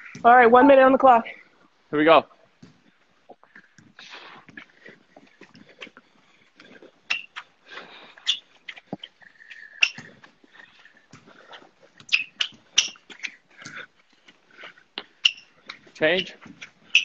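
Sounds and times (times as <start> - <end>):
shoe squeaks: 2.6 - 17.0.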